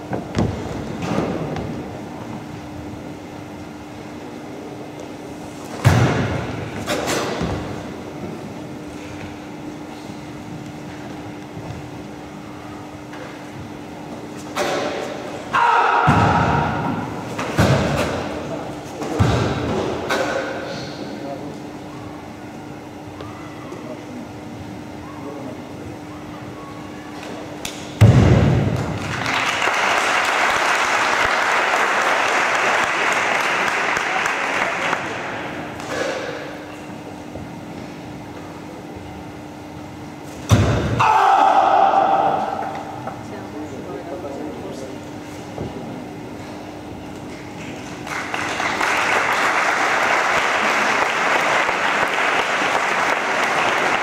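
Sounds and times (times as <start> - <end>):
crowd applause and cheering: 28.8 - 35.1, 48.0 - 54.0.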